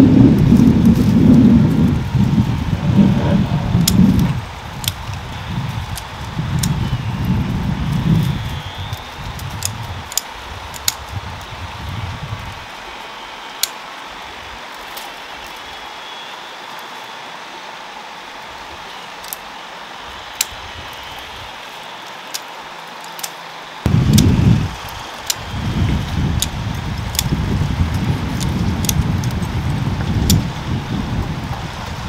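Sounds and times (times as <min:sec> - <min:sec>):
dry branches rustling: 0:00.0 - 0:32.0
pruning shears clicking: 0:03.8 - 0:07.0, 0:08.2 - 0:11.2, 0:13.6 - 0:13.8, 0:19.2 - 0:19.5, 0:20.3 - 0:25.5, 0:26.3 - 0:27.4, 0:28.4 - 0:29.4.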